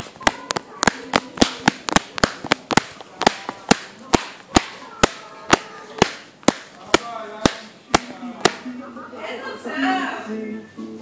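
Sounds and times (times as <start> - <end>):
hands clapping: 0.3 - 8.6.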